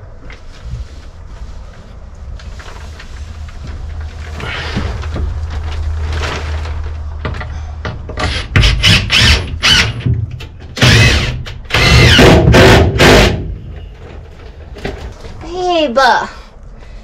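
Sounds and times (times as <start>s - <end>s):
power drill whining into wood: 8.2s - 10.0s, 10.8s - 13.4s.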